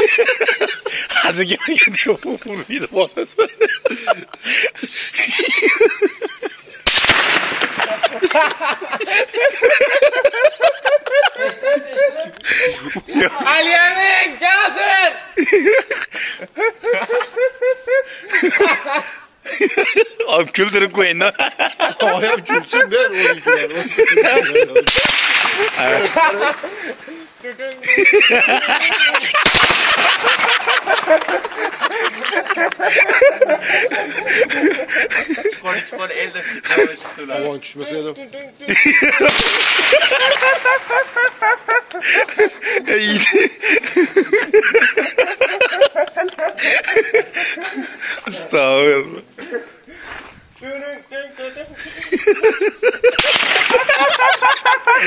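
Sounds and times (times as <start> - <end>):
men talking: 0.0 - 6.8, 7.6 - 55.0
men laughing: 0.0 - 55.0
faint gunshot cracks: 6.9 - 7.9, 24.9 - 26.0, 29.4 - 30.2, 39.3 - 40.4, 53.2 - 53.9
rifle shot: 6.9 - 8.0, 24.8 - 26.0, 29.4 - 30.5, 39.2 - 40.9, 53.2 - 54.0.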